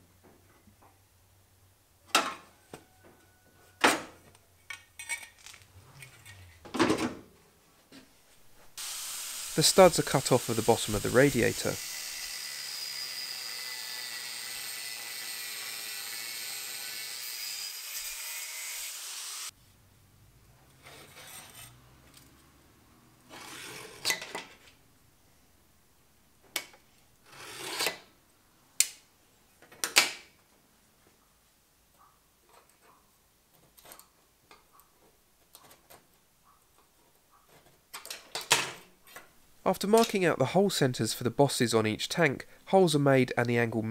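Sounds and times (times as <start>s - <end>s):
angle grinder cutting metal: 8.8s - 19.5s.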